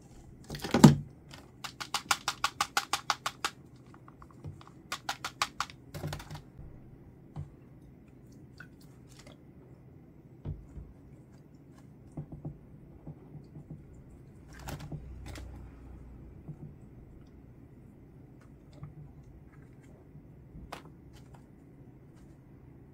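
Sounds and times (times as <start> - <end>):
small objects clicking and tapping: 0.5 - 6.4.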